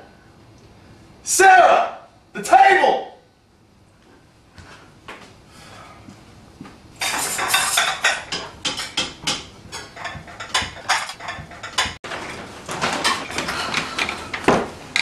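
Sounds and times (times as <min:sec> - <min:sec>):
pots and pans clattering: 0:07.0 - 0:15.0.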